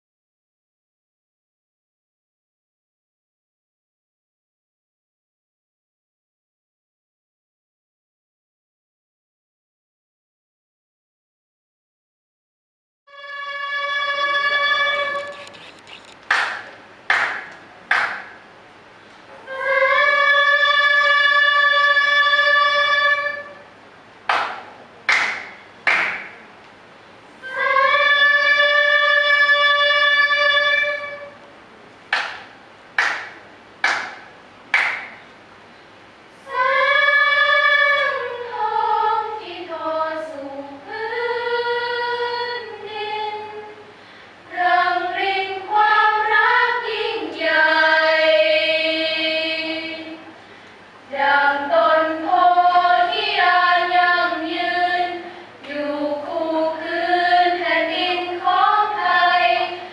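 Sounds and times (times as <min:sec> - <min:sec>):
female choir singing: 0:13.1 - 0:15.3, 0:19.4 - 0:23.7, 0:27.4 - 0:31.4, 0:36.4 - 0:43.9, 0:44.5 - 0:50.4, 0:51.1 - 0:59.9.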